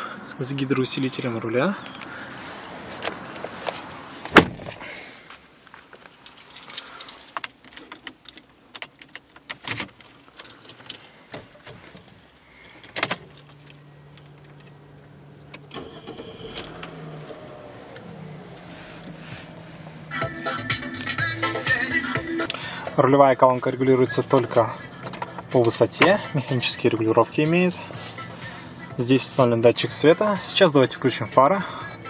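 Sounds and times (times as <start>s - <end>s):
steering wheel rattling: 7.4s - 22.4s
low steady hum: 12.0s - 27.2s.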